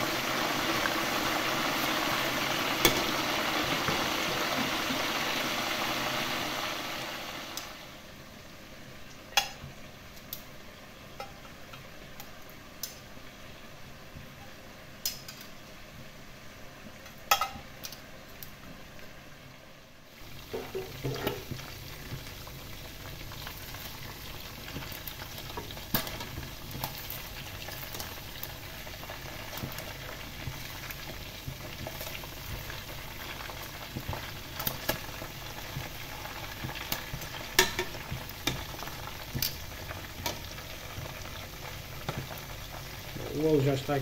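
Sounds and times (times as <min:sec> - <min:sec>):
oil sizzling and popping: 0:00.0 - 0:08.4, 0:09.0 - 0:13.4, 0:14.0 - 0:15.8, 0:16.8 - 0:19.2, 0:20.1 - 0:44.0
metal tongs in oil: 0:36.9 - 0:38.8.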